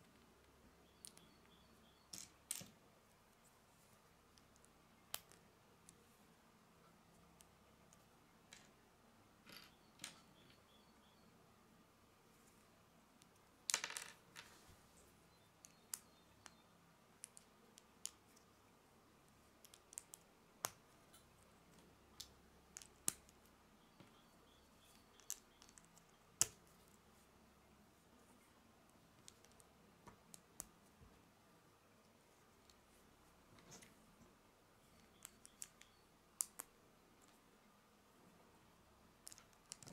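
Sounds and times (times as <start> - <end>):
plastic lego pieces clicking: 39.2 - 39.9.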